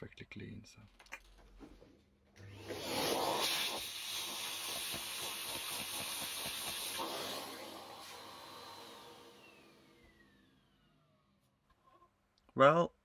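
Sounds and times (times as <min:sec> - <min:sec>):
small vacuum cleaner suction: 0:02.4 - 0:11.6.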